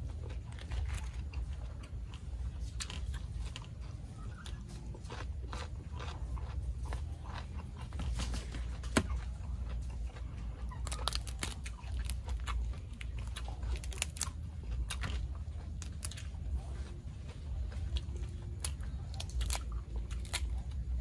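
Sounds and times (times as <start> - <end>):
mouth chewing: 0.0 - 21.0
prawn shell cracking and peeling: 10.8 - 16.3, 18.6 - 20.8.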